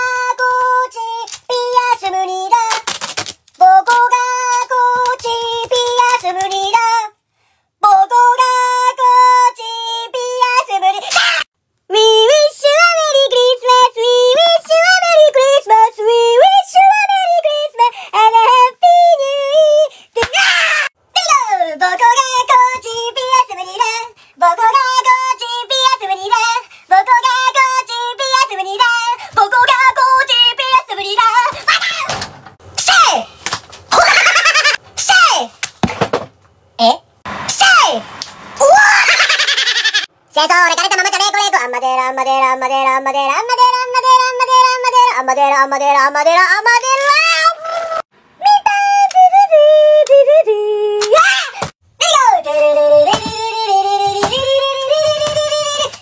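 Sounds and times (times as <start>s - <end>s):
high-pitched childlike singing: 0.0s - 2.9s, 3.6s - 7.2s, 7.8s - 32.2s, 40.3s - 56.0s.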